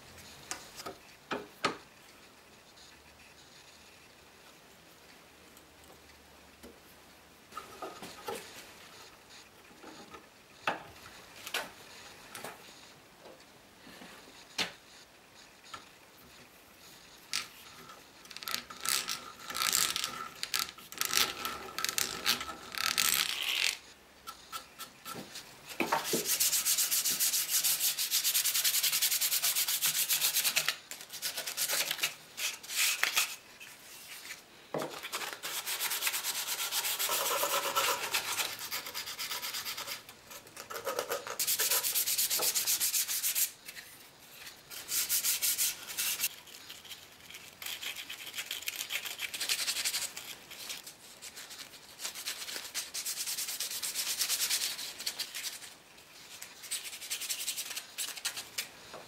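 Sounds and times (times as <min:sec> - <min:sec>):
hand sanding wood: 0:25.9 - 0:30.6, 0:35.1 - 0:40.0.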